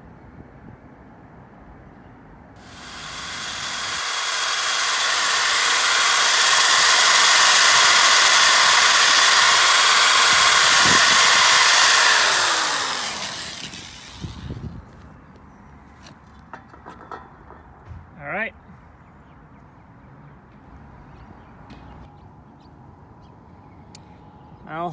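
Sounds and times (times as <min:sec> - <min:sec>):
drill wire wheel grinding rust: 0:02.6 - 0:14.7.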